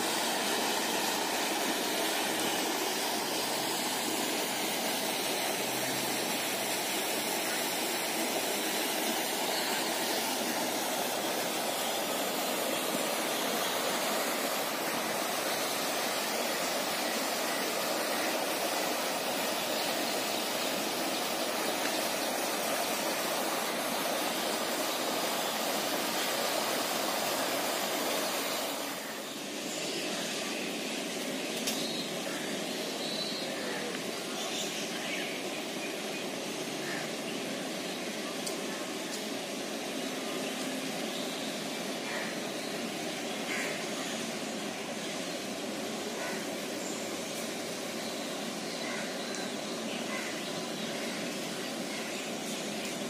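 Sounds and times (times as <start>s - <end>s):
fountain splashing water: 0.0s - 29.2s.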